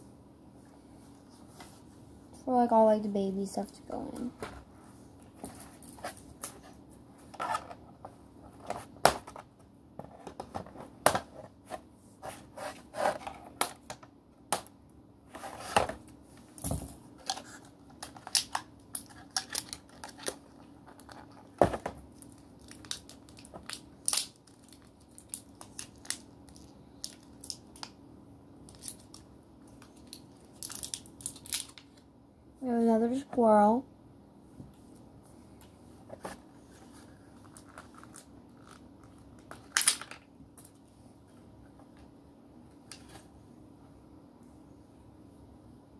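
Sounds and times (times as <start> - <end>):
faint steady hum: 0.0 - 45.9
packaging crinkling: 17.2 - 27.9, 28.7 - 32.0.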